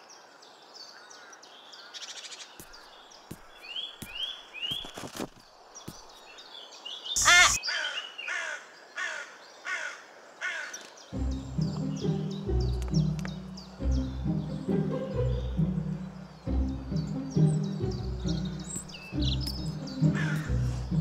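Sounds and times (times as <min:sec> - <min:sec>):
small birds chirping: 0:00.0 - 0:21.0
crow cawing: 0:07.2 - 0:10.8, 0:20.1 - 0:20.6.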